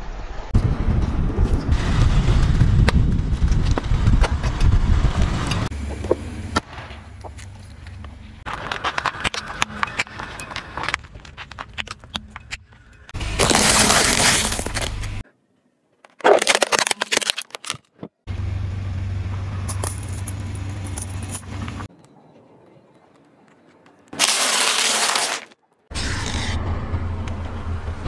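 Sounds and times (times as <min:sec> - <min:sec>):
tyre crushing small objects: 0:07.2 - 0:15.2, 0:16.0 - 0:18.1, 0:24.2 - 0:25.6
car engine running: 0:18.3 - 0:21.9.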